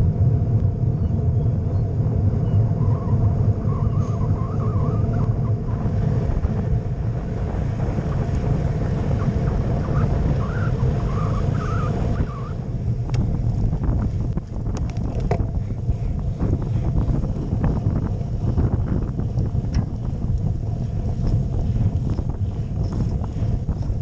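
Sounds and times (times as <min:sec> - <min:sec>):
tyres rumbling on asphalt: 0:00.0 - 0:24.0
wind buffeting microphone: 0:00.0 - 0:24.0
sharp clicks and rattles: 0:13.0 - 0:16.0.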